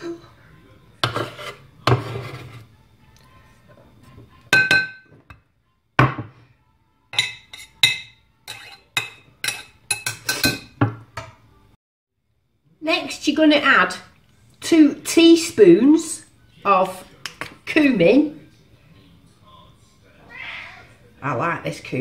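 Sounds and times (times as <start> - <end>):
knife scraping wooden board: 1.0 - 2.6.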